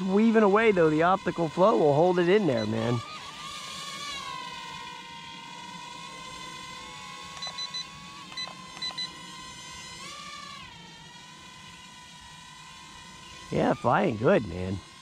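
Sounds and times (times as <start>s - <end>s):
toy drone motors whining: 0.0s - 15.0s
short electronic beeps: 7.4s - 9.1s.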